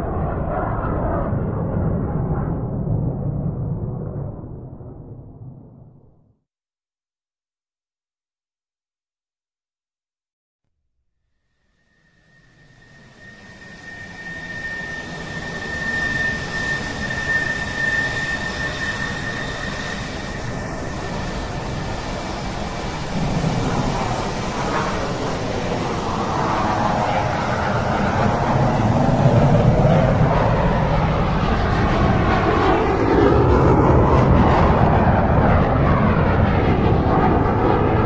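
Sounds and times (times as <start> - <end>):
high steady whine: 11.6 - 33.8
jet engines running: 12.1 - 38.0.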